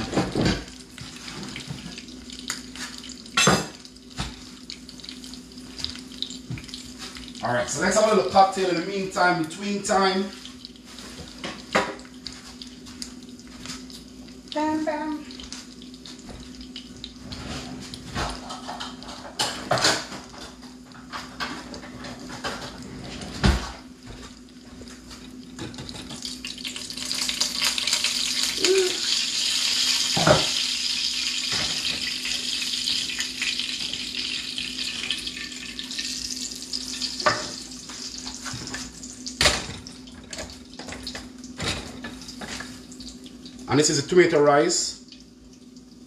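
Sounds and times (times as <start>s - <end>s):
pots and utensils clattering: 0.0s - 2.0s, 2.7s - 4.4s, 17.2s - 24.4s, 25.6s - 28.0s, 30.0s - 30.7s, 31.3s - 34.2s, 37.2s - 37.7s, 38.4s - 42.8s
water running from a tap: 0.0s - 46.0s.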